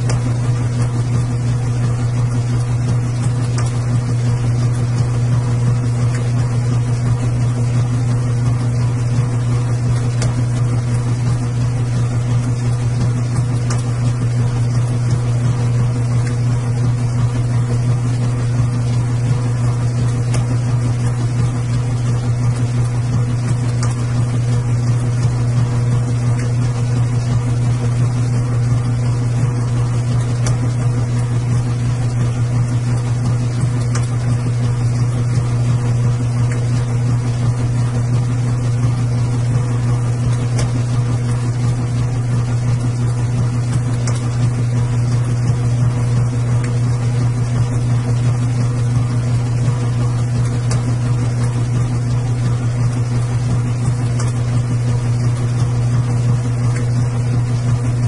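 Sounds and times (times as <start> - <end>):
washing machine humming: 0.0 - 58.0.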